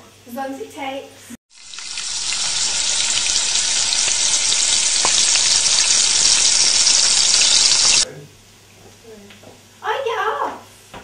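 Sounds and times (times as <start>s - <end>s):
sauce sizzling in a wok: 1.5s - 8.1s.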